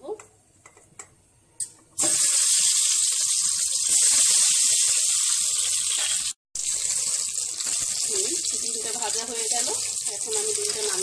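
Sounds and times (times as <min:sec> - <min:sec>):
oil sizzling in a pot: 0:02.0 - 0:11.0.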